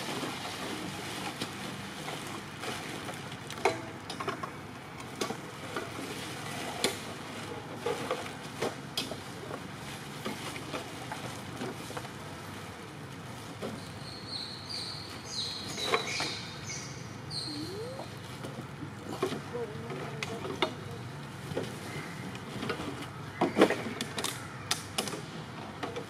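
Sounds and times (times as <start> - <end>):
plastic bags rustling and crinkling: 0.0 - 14.1.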